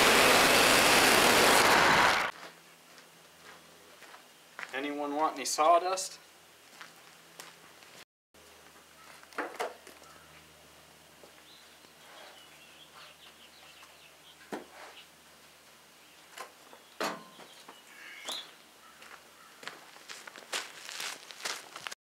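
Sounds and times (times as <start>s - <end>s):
faint bird chirps: 16.6s - 19.6s.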